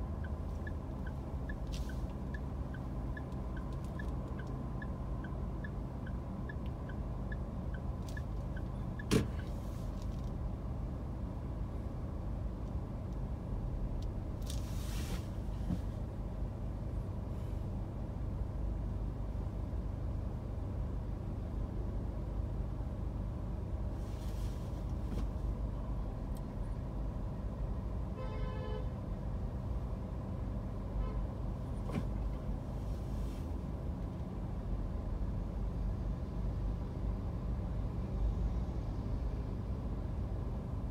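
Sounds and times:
car engine idling: 0:00.0 - 0:14.4
brief hisses: 0:14.6 - 0:15.4.

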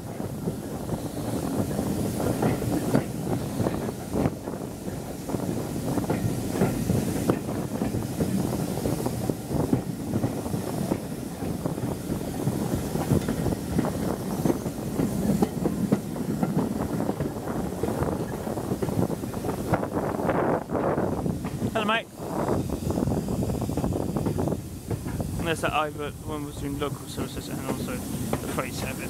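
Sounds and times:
train coach rumbling: 0:00.0 - 0:29.0
wheels clicking over rail joints: 0:26.4 - 0:29.0.

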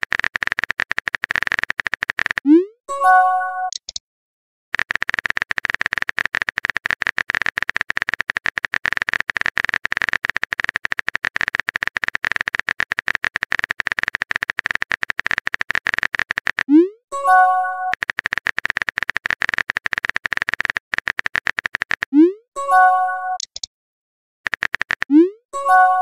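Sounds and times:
keyboard typing clicks: 0:00.0 - 0:04.0, 0:04.8 - 0:23.7, 0:24.5 - 0:26.0
message chime: 0:02.9 - 0:03.7, 0:17.2 - 0:17.9, 0:22.6 - 0:23.4, 0:25.6 - 0:26.0.

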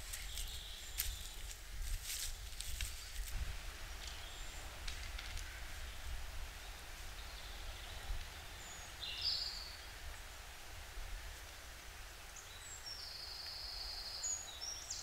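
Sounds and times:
faint rustles: 0:00.0 - 0:05.9.

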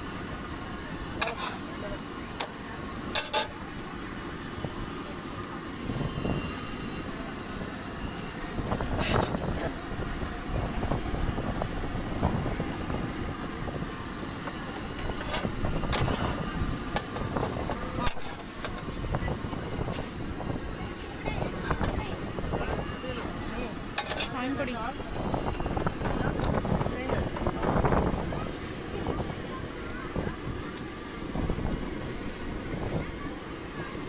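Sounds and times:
outdoor street noise: 0:00.0 - 0:34.0
faint voices: 0:00.1 - 0:34.0
metal spatula scraping iron griddle: 0:00.8 - 0:01.8, 0:02.5 - 0:03.6, 0:18.0 - 0:18.8.

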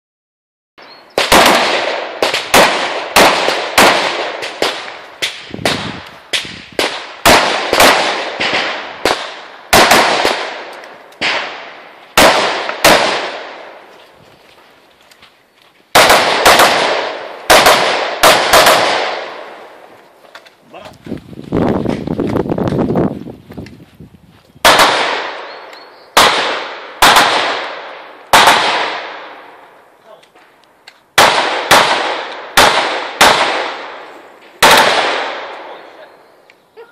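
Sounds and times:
rifle shots echoing: 0:01.2 - 0:13.9, 0:15.9 - 0:19.8, 0:24.6 - 0:29.7, 0:31.2 - 0:36.0.

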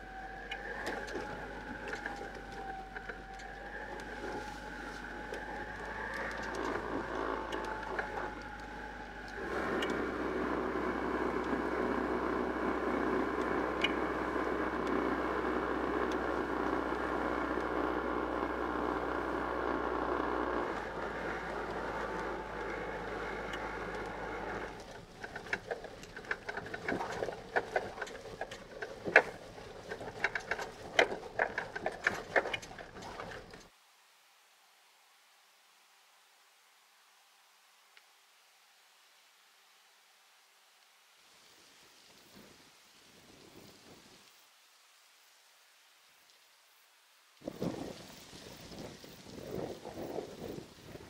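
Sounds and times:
tyres clicking and rattling on rough road: 0:00.0 - 0:33.7
van engine and road drone: 0:00.0 - 0:33.7.

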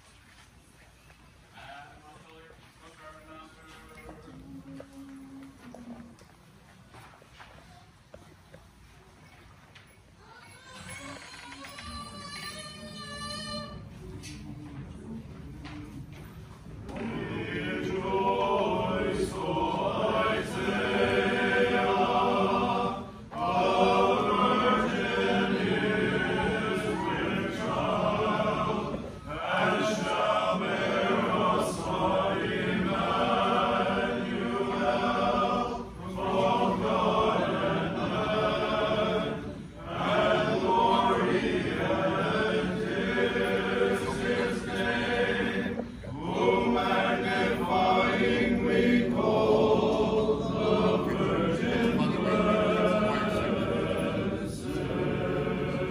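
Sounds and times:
choir singing a chant: 0:16.8 - 0:55.9.

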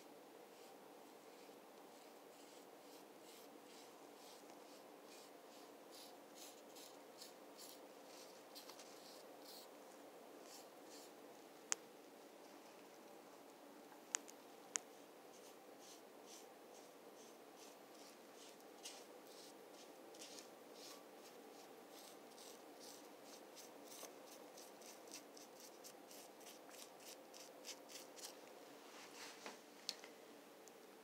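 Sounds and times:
low room hum: 0:00.0 - 0:31.0
paintbrush scratchy strokes: 0:00.5 - 0:09.8, 0:10.4 - 0:11.2, 0:14.9 - 0:28.4.

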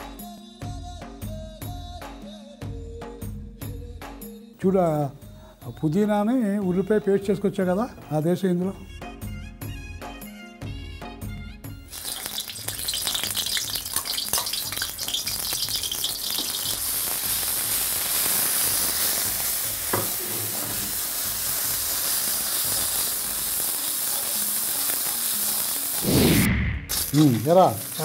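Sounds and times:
background music: 0:00.0 - 0:28.0
paste sizzling in hot oil: 0:11.9 - 0:28.0.

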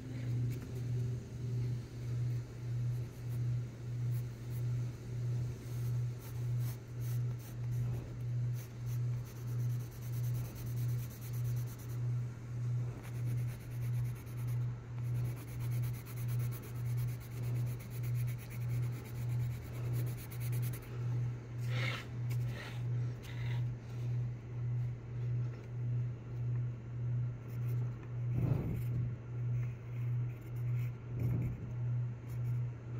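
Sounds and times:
low pulsing hum: 0:00.0 - 0:32.9
pencil sketching on paper: 0:02.1 - 0:12.2, 0:12.8 - 0:21.0, 0:21.6 - 0:23.7, 0:27.5 - 0:31.6.

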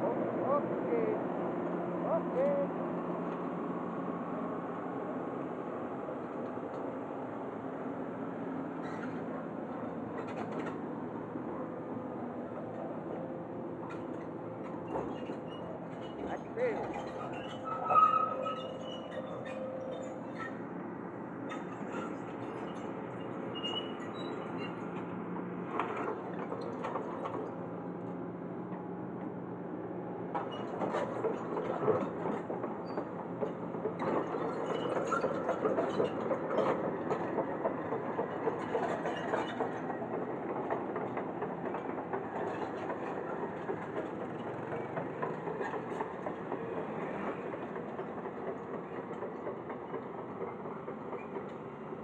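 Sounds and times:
track chains clanking: 0:13.8 - 0:20.6, 0:30.4 - 0:52.0.

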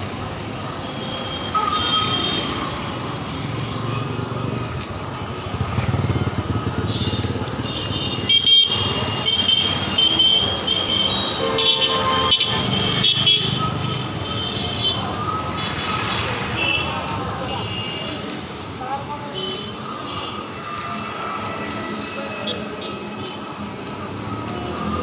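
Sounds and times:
street traffic rumble: 0:00.0 - 0:25.0
high-pitched vehicle horns: 0:06.8 - 0:16.9.

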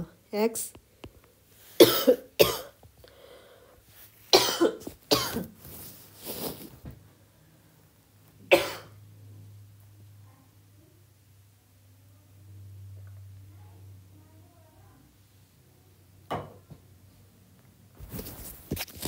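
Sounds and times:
woman coughing: 0:01.8 - 0:02.8, 0:04.3 - 0:05.5, 0:08.5 - 0:09.0.

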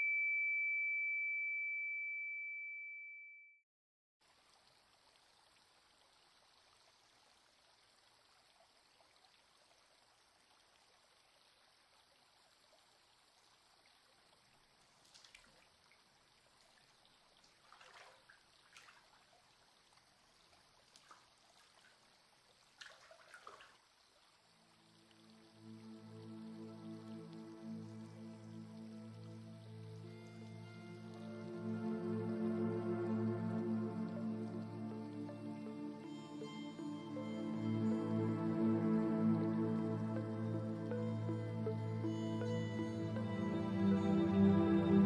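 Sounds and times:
soft water splashes: 0:04.2 - 0:30.5
running water in a stream: 0:04.2 - 0:45.0.

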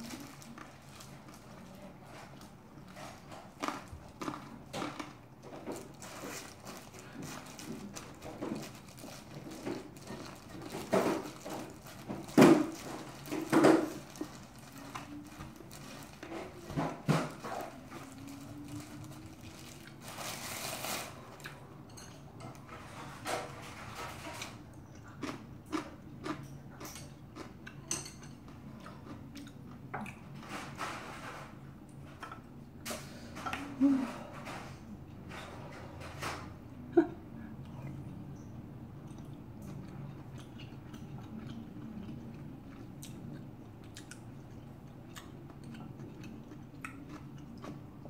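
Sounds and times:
plastic glove crinkling: 0:00.0 - 0:01.7, 0:05.8 - 0:21.4
crunchy chewing: 0:00.0 - 0:16.7, 0:24.2 - 0:30.2, 0:37.6 - 0:48.0.

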